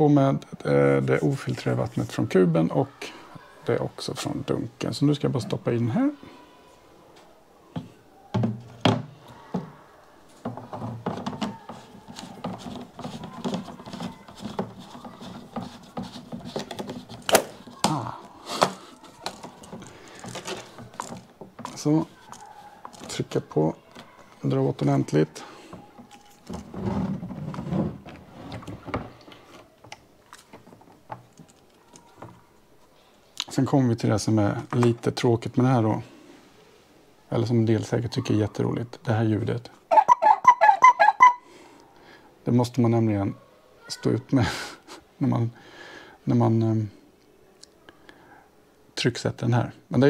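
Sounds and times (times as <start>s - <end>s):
plastic parts knocking and rattling: 7.8s - 25.0s, 25.7s - 32.4s
plastic scraping and rubbing: 8.4s - 24.9s, 25.7s - 32.4s.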